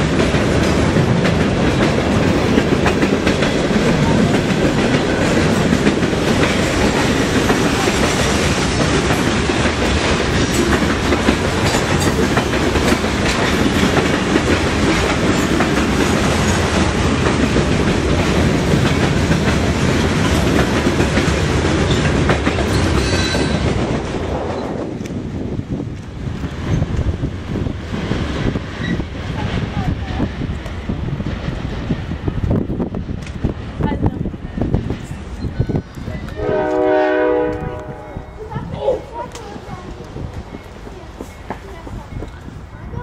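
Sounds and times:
train wheels clacking on rail joints: 0.0 - 25.2, 39.2 - 42.4.

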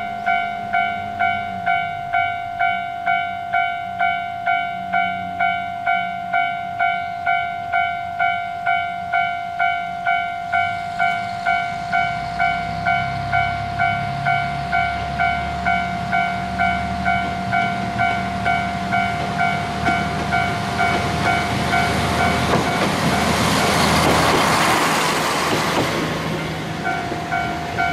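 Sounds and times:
level crossing warning bell: 0.0 - 23.8, 26.8 - 27.9
diesel railcar engine rumble: 0.0 - 27.9
train wheel noise: 9.1 - 27.9.

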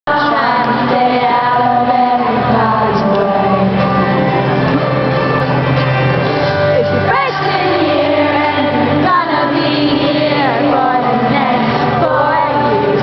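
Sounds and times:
woman singing: 0.1 - 4.2, 7.1 - 13.0
acoustic guitar: 0.1 - 13.0
crowd voices: 0.1 - 13.0.

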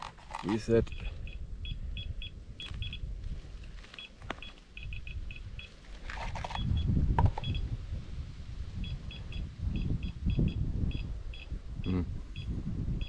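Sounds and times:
dosimeter beeping: 0.8 - 3.1, 4.0 - 5.8, 8.8 - 12.5.

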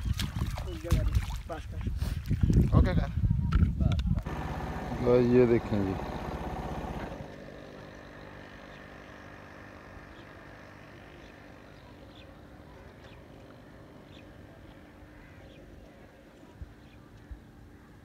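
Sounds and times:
engine running: 4.2 - 15.0.

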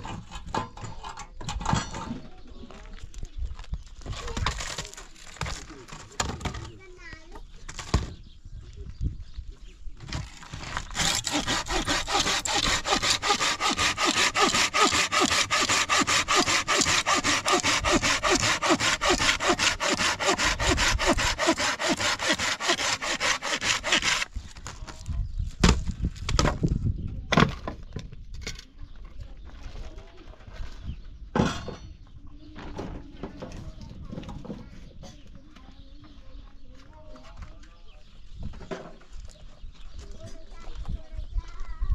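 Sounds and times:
saw cutting wood: 10.6 - 24.3.

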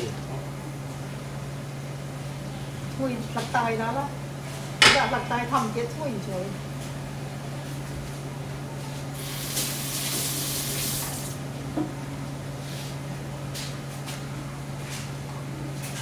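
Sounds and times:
steady low hum: 0.0 - 8.7
water running: 9.2 - 11.4.

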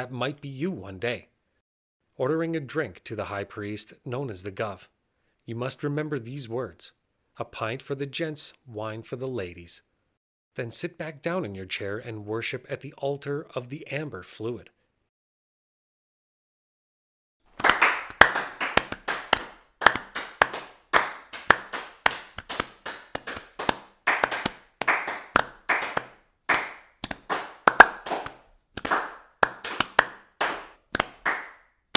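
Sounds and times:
hand claps: 17.5 - 31.7.

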